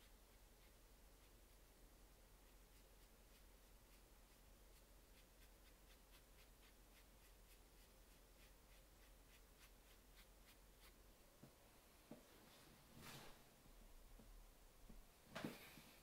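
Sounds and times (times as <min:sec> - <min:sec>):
brush strokes on paper: 0:00.0 - 0:11.2.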